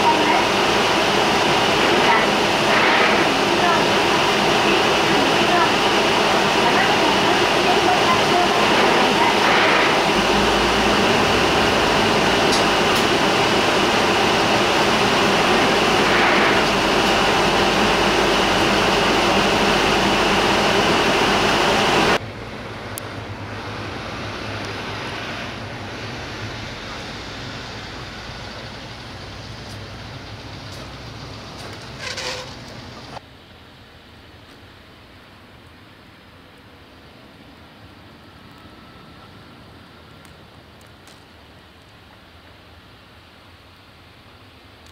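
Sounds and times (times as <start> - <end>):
bus cabin engine noise: 0.0 - 33.3
bus engine and road noise: 0.0 - 44.9.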